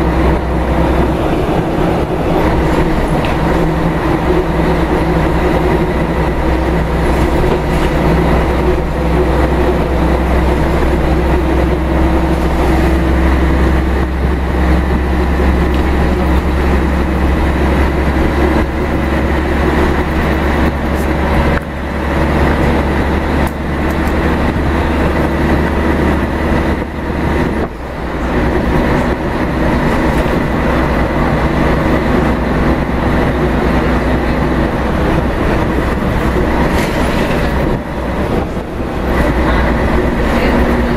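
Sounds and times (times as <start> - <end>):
bus engine drone: 0.0 - 40.9
road and body noise: 0.0 - 40.9.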